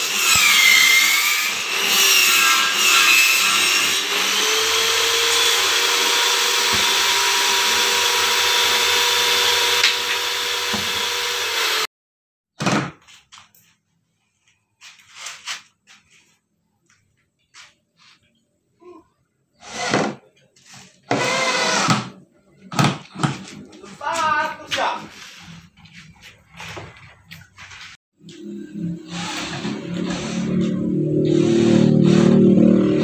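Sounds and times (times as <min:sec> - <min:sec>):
table saw cutting board: 0:00.0 - 0:11.9, 0:28.4 - 0:33.0.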